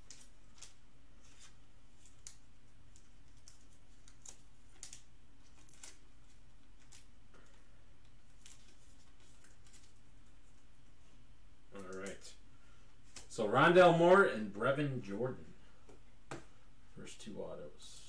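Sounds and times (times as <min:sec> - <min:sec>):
card in plastic sleeve rustling: 0:00.0 - 0:10.7.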